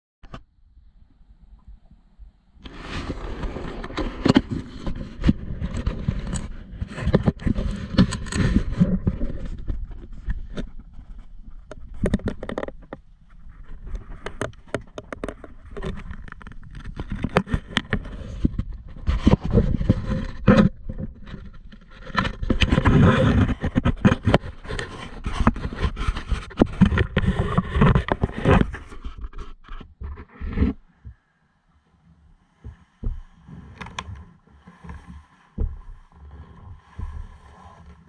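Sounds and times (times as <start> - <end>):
camera rubbing against jacket: 2.6 - 31.3, 32.6 - 38.0
sharp knocks and clicks: 11.7 - 13.0, 13.9 - 31.2, 32.6 - 36.1.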